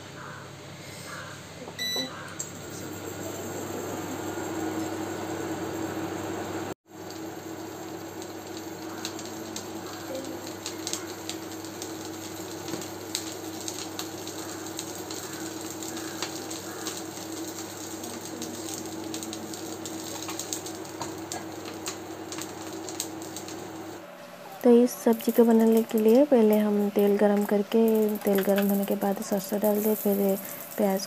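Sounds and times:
oil sizzling and popping: 0:02.2 - 0:31.0
seeds dropped into hot oil: 0:06.9 - 0:24.0, 0:25.1 - 0:31.0.

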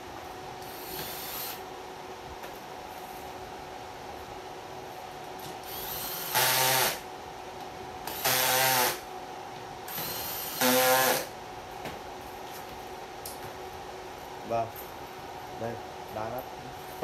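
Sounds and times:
cordless drill driving screws: 0:05.7 - 0:07.0, 0:08.1 - 0:09.0, 0:10.0 - 0:11.3.

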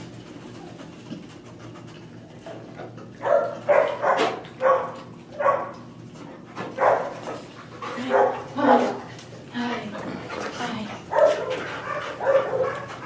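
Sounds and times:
dog barking: 0:03.2 - 0:05.8, 0:06.8 - 0:07.1, 0:08.0 - 0:09.0, 0:11.1 - 0:12.9.

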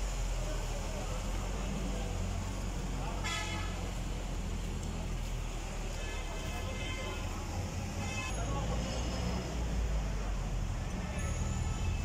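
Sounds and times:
traffic engine rumble: 0:00.0 - 0:12.0.

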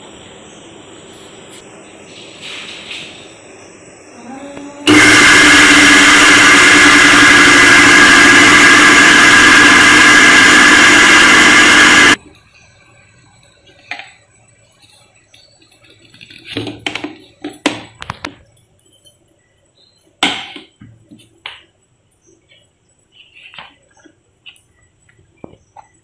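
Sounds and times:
mixer grinder motor whining: 0:04.9 - 0:12.2.

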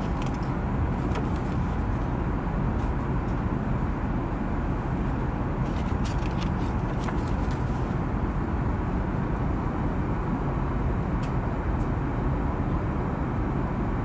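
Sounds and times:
paper pages turning: 0:00.0 - 0:02.1, 0:05.6 - 0:08.0
airplane cabin rumble: 0:00.0 - 0:14.0
light paper ticks: 0:05.7 - 0:07.8.

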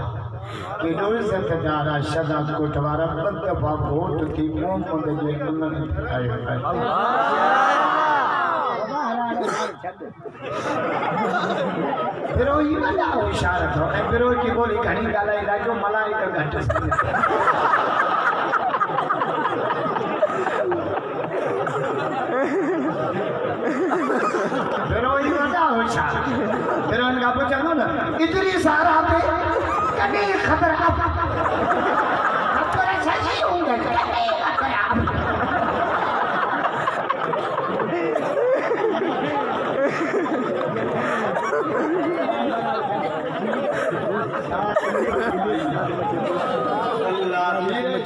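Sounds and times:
audience chattering: 0:00.0 - 0:48.0
men laughing: 0:06.7 - 0:14.6, 0:16.4 - 0:48.0.

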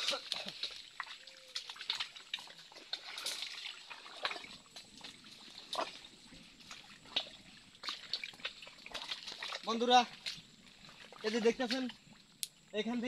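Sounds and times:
footsteps squelching in mud: 0:00.0 - 0:13.0.

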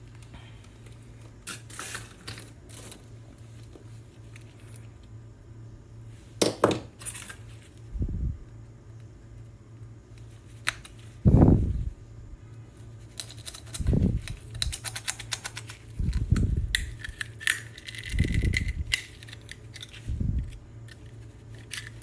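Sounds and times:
steady low hum: 0:00.0 - 0:22.0
oyster shells clicking and cracking: 0:13.2 - 0:22.0.

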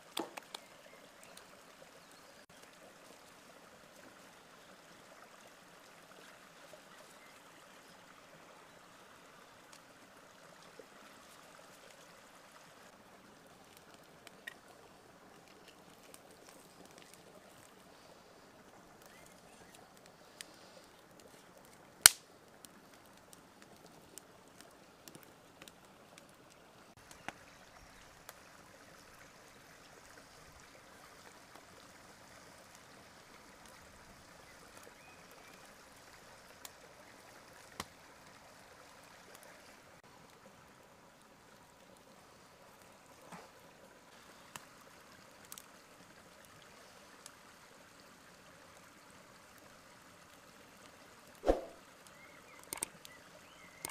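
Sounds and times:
faint steady hiss: 0:00.0 - 0:53.9
sharp loud click: 0:51.4 - 0:51.8.

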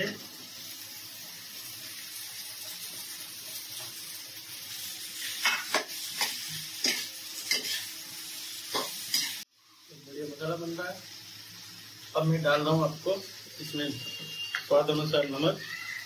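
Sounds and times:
potatoes sizzling in oil: 0:00.0 - 0:16.0
metal spatula scraping pan: 0:05.4 - 0:07.9.

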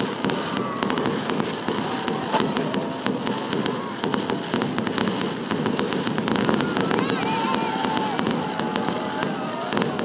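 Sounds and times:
fireworks crackling and popping: 0:00.0 - 0:10.0
rumble of explosions: 0:00.0 - 0:10.0.

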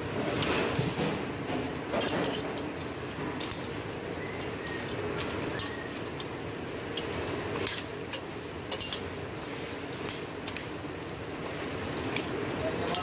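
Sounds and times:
cooking hiss: 0:00.0 - 0:13.0.

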